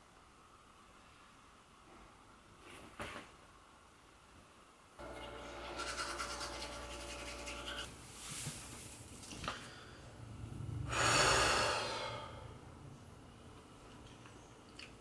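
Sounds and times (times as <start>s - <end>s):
toothbrush scrubbing: 5.3s - 7.9s
loud breathy rush: 9.6s - 12.7s.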